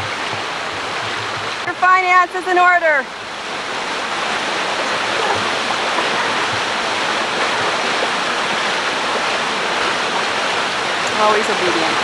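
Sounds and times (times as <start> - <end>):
water cascading over rocks: 0.0 - 12.0.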